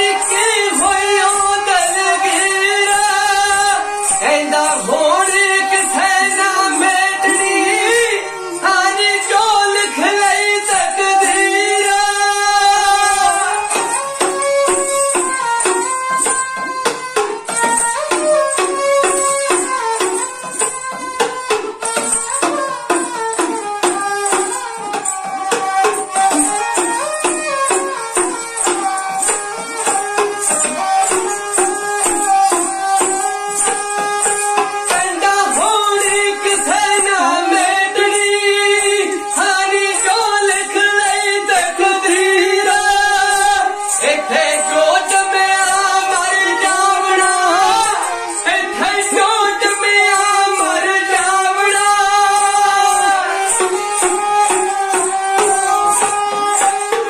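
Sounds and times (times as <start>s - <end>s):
man singing: 0.0s - 15.4s, 32.2s - 57.0s.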